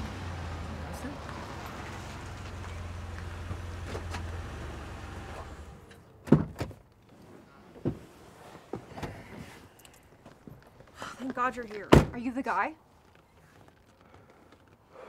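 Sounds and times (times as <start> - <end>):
car engine humming: 0.0 - 6.0.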